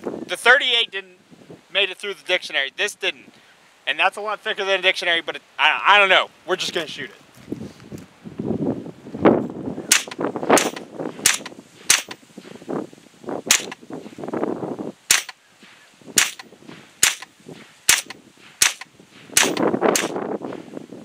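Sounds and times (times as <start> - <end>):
handgun shots: 9.9 - 12.2, 13.5 - 13.8, 15.1 - 15.4, 16.2 - 17.3, 17.9 - 20.2.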